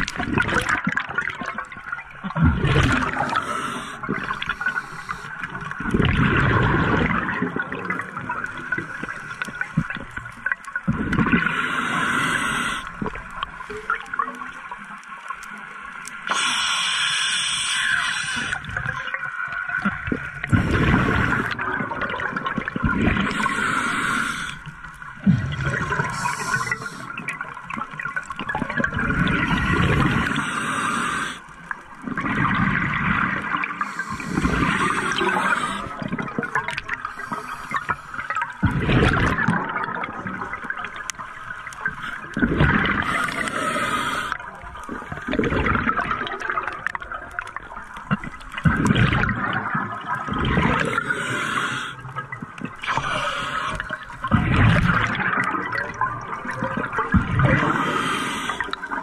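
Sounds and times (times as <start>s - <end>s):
exhaust bubbles burbling: 0.0s - 3.4s, 5.6s - 8.9s, 9.8s - 11.5s, 19.8s - 23.6s, 25.2s - 30.4s, 38.4s - 41.1s, 41.8s - 43.7s, 44.8s - 51.1s, 53.8s - 58.0s
scuba regulator hiss: 3.2s - 5.4s, 11.6s - 12.9s, 16.3s - 18.7s, 23.3s - 24.6s, 26.0s - 27.2s, 30.2s - 31.4s, 33.8s - 36.0s, 43.0s - 44.4s, 50.8s - 52.0s, 53.0s - 53.9s, 57.7s - 58.7s.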